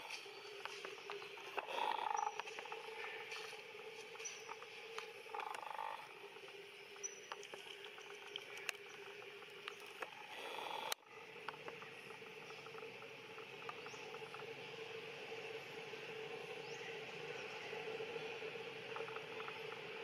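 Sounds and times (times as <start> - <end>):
faint clicks and ticks: 0.0 - 14.5, 18.8 - 20.0
insect drone: 0.0 - 20.0.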